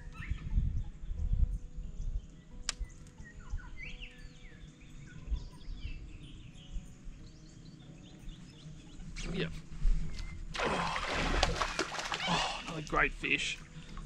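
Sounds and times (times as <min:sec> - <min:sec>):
birds chirping: 0:00.0 - 0:14.0
sharp click: 0:02.6 - 0:03.1.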